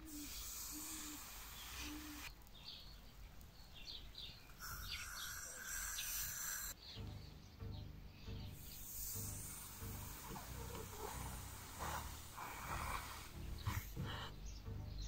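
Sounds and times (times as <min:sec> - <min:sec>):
hot blade sizzling on plastic: 0:00.0 - 0:06.8, 0:08.5 - 0:14.3
small birds chirping: 0:00.0 - 0:15.0.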